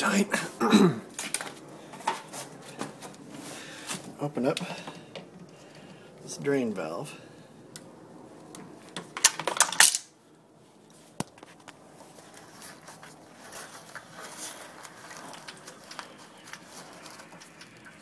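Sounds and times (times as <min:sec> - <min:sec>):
light rustle: 0:10.6 - 0:18.0.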